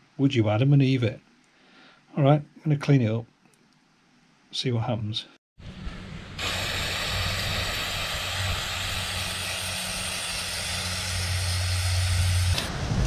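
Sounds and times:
aerosol can spraying hiss: 6.4 - 12.7.

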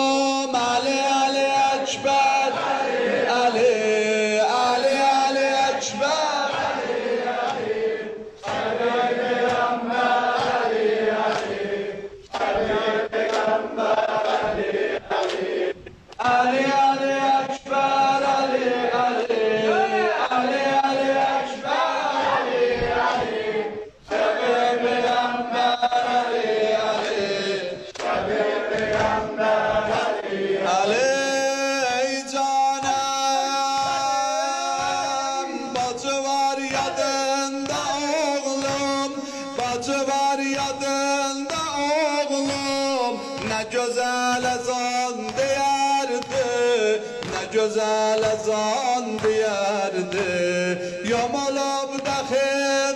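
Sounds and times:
men chanting a lament: 0.0 - 52.9
chest-beating slaps: 5.9 - 16.5, 22.1 - 24.3, 26.9 - 30.3, 32.8 - 52.5.

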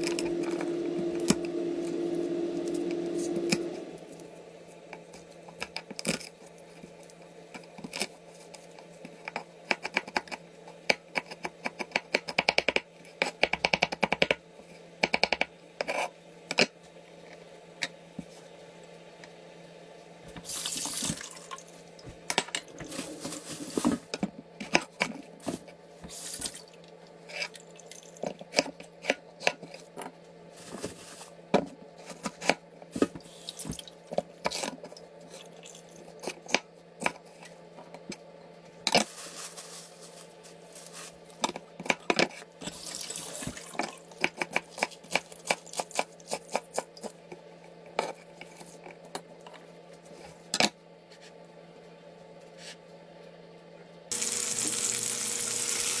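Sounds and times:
steady low hum: 0.0 - 5.6, 20.9 - 24.6
kitchen tap running: 42.7 - 44.0, 54.1 - 56.0.

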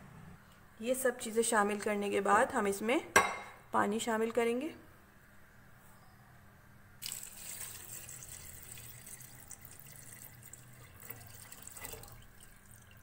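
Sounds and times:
water pouring into a pot: 7.0 - 13.0.

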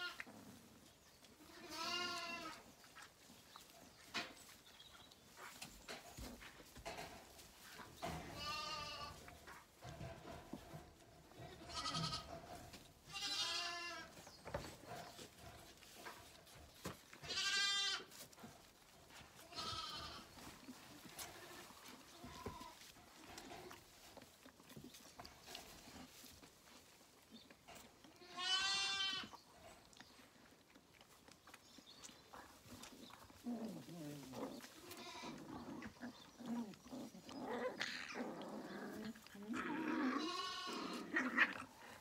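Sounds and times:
lambs bleating: 1.4 - 2.6, 8.2 - 9.2, 11.4 - 12.4, 13.1 - 14.2, 17.2 - 18.1, 19.5 - 20.3, 28.2 - 29.3, 34.7 - 35.6, 39.5 - 41.7
faint rustling and knocks: 2.4 - 28.0.

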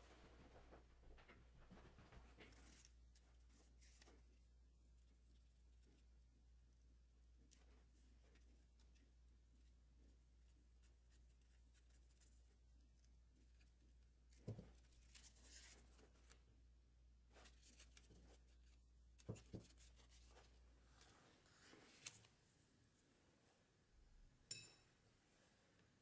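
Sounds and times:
paper rustling and crinkling: 0.1 - 4.5, 11.1 - 16.5, 17.3 - 22.6.

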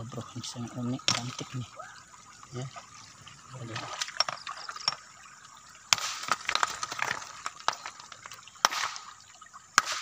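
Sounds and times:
rock handled near microphone: 6.2 - 8.4.

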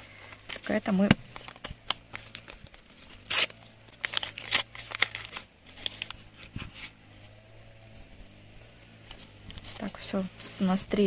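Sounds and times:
paper rustling: 0.1 - 7.1
paper tearing and crinkling: 1.3 - 7.0.

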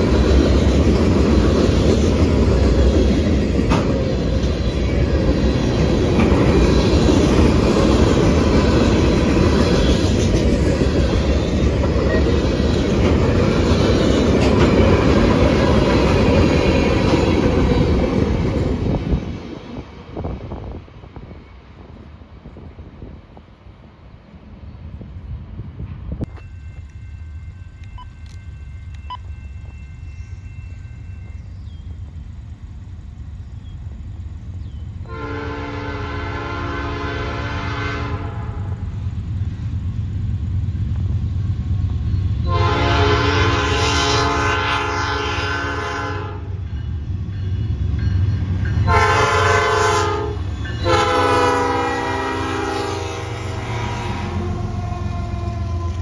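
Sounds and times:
locomotive rumble: 0.0 - 56.0
train horn blasts: 35.1 - 38.8, 42.4 - 46.6, 48.8 - 56.0.

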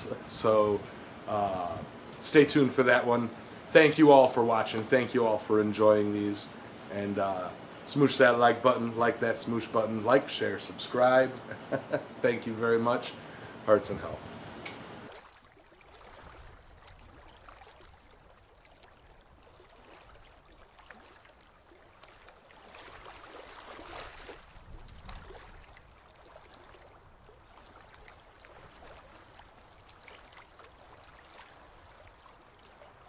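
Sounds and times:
muffled underwater wash: 15.1 - 33.0.

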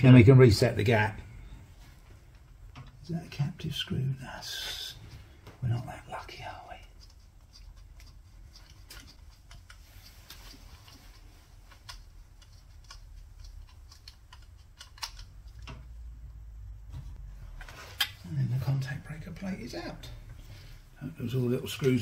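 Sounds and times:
screwdriver and metal parts clicking: 6.9 - 15.7.

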